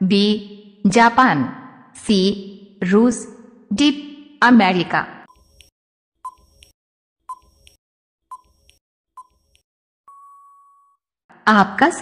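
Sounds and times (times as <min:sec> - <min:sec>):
tick-tock timer clicks: 0:05.3 - 0:09.6
steady timer beep: 0:05.3 - 0:10.6.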